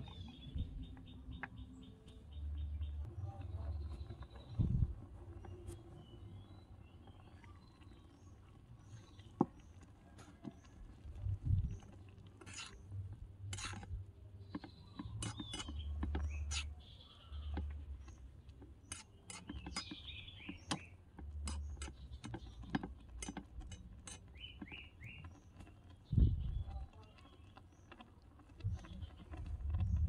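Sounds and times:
birds chirping: 0.0s - 13.0s, 13.6s - 30.0s
metal spatula scraping wok: 12.4s - 14.0s, 15.0s - 16.8s, 18.8s - 20.0s.

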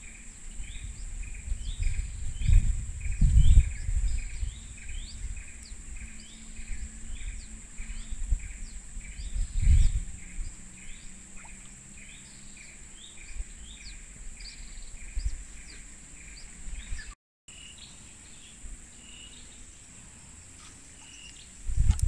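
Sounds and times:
high insect drone: 0.0s - 16.9s
low rumble: 0.0s - 17.1s.

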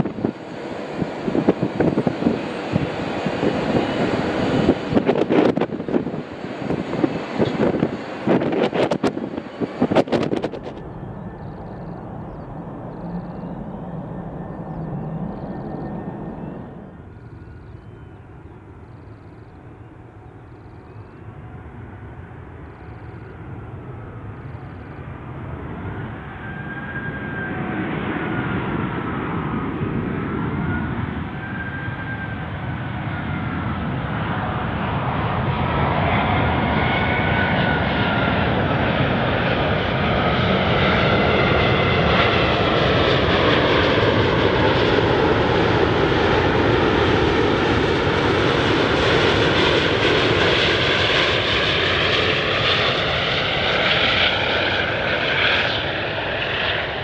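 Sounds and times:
jet airliner passing overhead: 0.0s - 57.0s.

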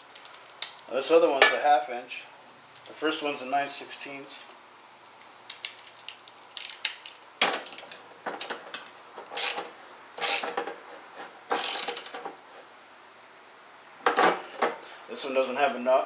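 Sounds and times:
ratchet wrench clicking: 5.5s - 10.7s, 11.5s - 12.2s.

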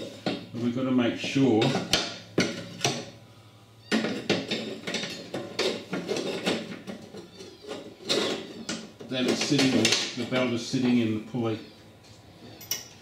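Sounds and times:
metallic clinks and knocks: 12.6s - 13.0s.

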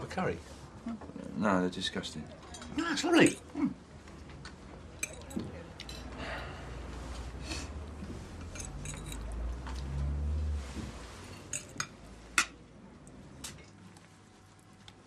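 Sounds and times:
cutlery and crockery clinking: 2.4s - 3.5s, 5.0s - 6.1s, 8.4s - 9.4s, 11.4s - 12.6s.

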